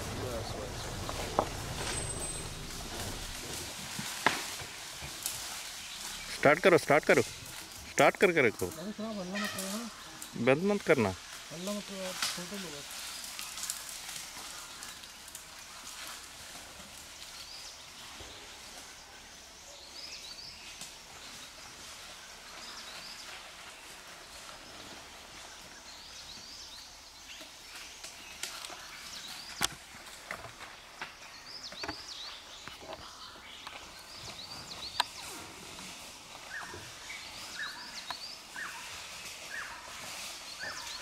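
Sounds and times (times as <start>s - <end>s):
small birds chirping: 0.0s - 3.8s, 5.0s - 16.3s, 24.4s - 41.0s
steady high hiss: 0.0s - 15.8s.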